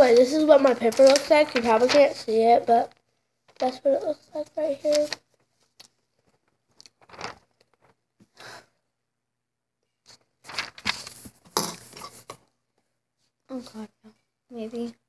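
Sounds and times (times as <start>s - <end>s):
paper rustling and crinkling: 0.0s - 8.0s, 10.1s - 12.4s.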